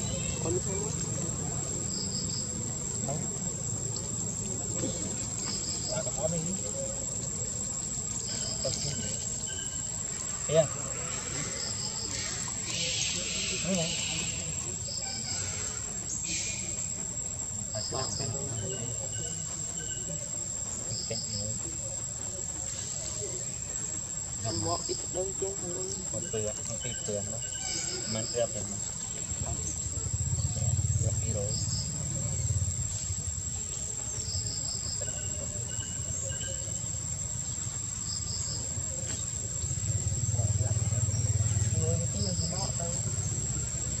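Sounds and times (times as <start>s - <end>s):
insects trilling: 0.0s - 44.0s.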